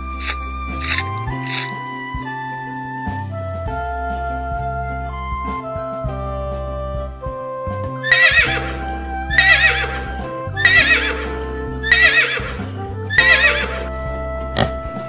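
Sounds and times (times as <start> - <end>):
background music: 0.0 - 15.0
horse whinnying: 8.0 - 15.0.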